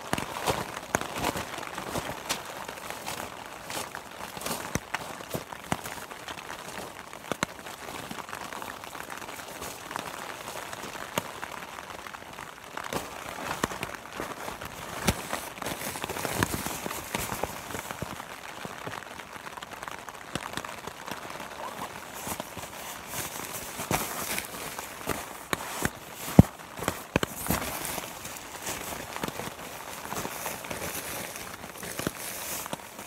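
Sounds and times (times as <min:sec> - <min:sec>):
plastic and nylon rustling: 0:12.4 - 0:18.8, 0:20.5 - 0:33.0.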